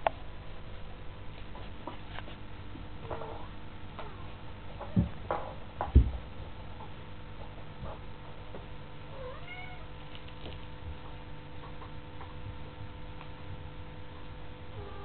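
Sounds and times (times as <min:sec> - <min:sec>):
kitten meowing: 0:09.1 - 0:09.9.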